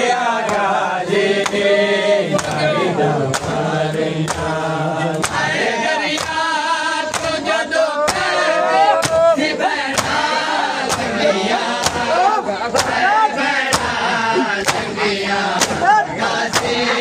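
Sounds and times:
men chanting in chorus: 0.0 - 17.0
hands slapping chests: 1.4 - 1.6, 3.3 - 4.6, 8.1 - 8.3, 10.8 - 11.1, 13.7 - 15.9, 16.5 - 17.0.

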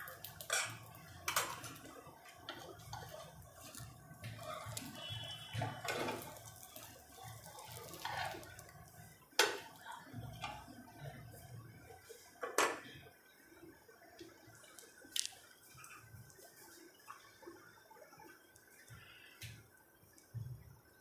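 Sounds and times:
food sizzling in oil: 0.0 - 12.4.

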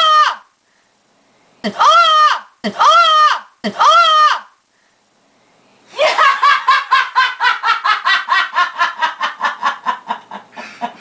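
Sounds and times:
person laughing hard: 5.9 - 11.0.

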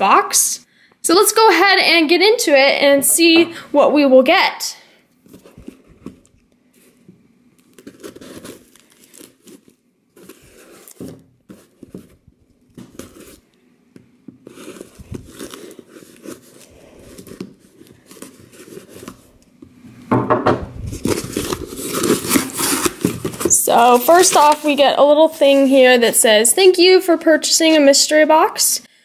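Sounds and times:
cardboard rustling and crinkling: 5.2 - 19.8, 20.7 - 26.4
box cutter slicing packing tape: 21.3 - 24.4.

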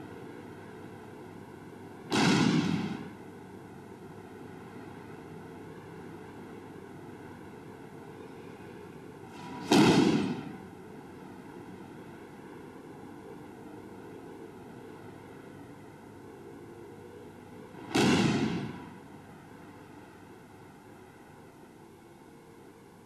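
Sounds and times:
steady background hiss: 0.0 - 23.0
heavy thuds on mats: 9.6 - 10.6.

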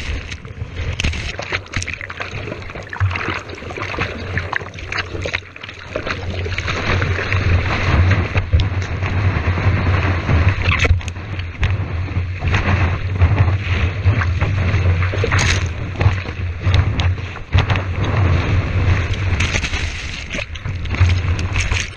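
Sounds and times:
whitewater rushing and splashing: 0.0 - 21.9
wind rumble on microphone: 0.0 - 21.9.

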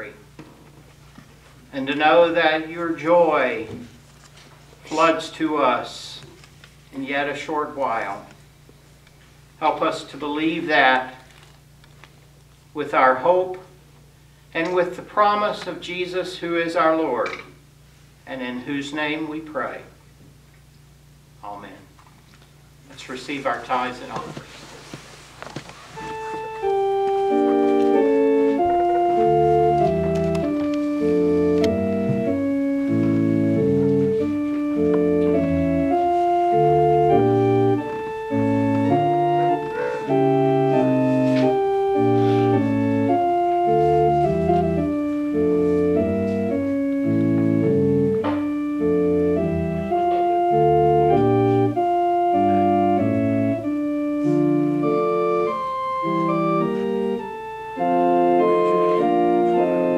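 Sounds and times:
organ playing slow chords: 1.4 - 11.8, 25.7 - 59.9.

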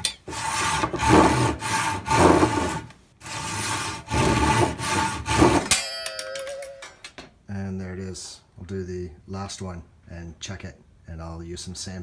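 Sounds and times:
saw rasping through wood: 0.0 - 5.7
short metallic ring: 5.6 - 7.1.

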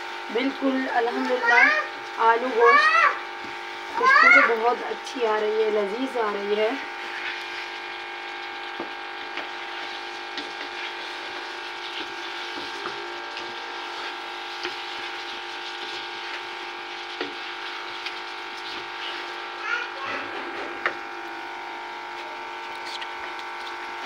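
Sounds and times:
food sizzling: 0.0 - 24.0
wooden spoon scraping a wok: 5.6 - 19.6, 22.1 - 24.0.

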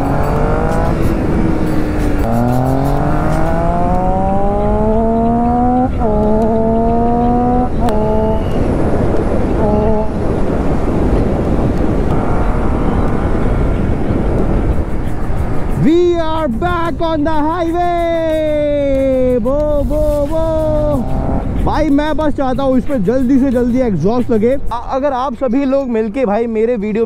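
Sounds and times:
motorcycle engine accelerating: 0.0 - 15.7, 20.8 - 21.6
wind rush on microphone: 0.0 - 26.6.

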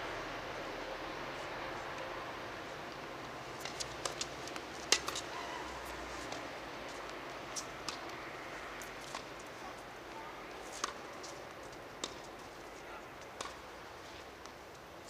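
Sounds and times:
steady outdoor hiss: 0.0 - 15.0
tennis ball and racket taps: 3.6 - 5.3, 6.2 - 8.2, 8.8 - 9.5, 10.6 - 12.4, 13.2 - 13.6, 14.4 - 14.6.

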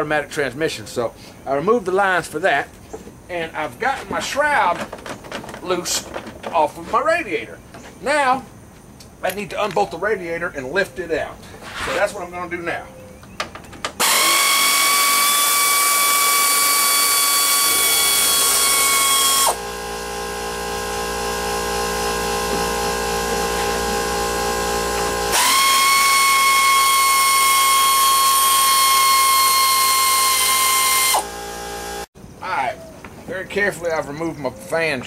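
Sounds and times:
power tool whining: 13.8 - 32.1.

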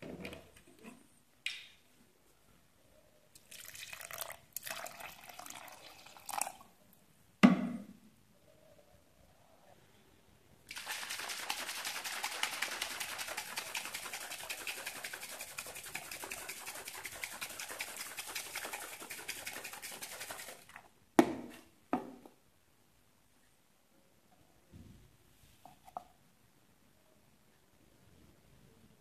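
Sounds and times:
shaker bottle sloshing rattle: 10.7 - 20.8.

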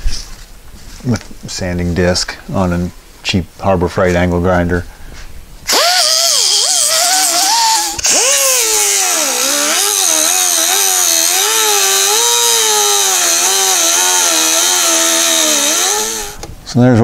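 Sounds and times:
grinder grinding metal: 5.7 - 16.4.

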